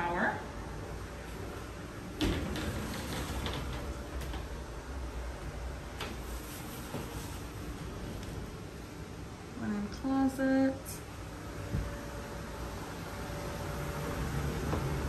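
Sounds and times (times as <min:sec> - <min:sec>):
shower door clicking and rattling: 0:02.2 - 0:04.6.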